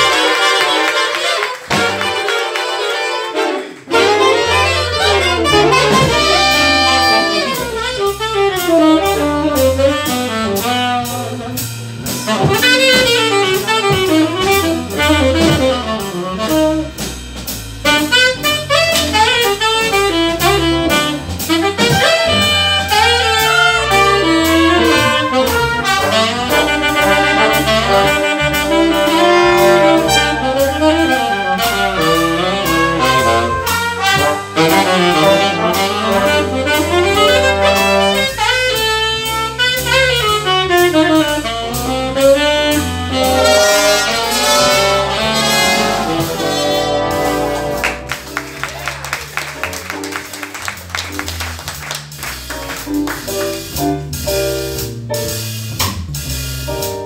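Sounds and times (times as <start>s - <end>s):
jazz big band playing: 0.0s - 57.0s.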